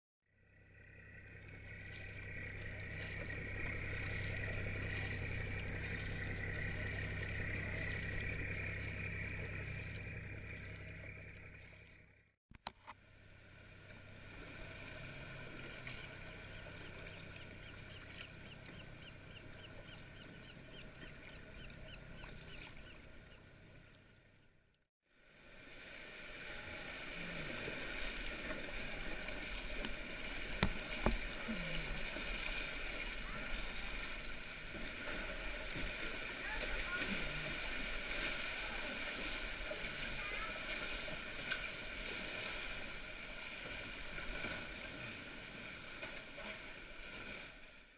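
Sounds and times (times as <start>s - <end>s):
steady low hum: 0.3s - 12.3s
kayak paddling in water: 0.4s - 47.9s.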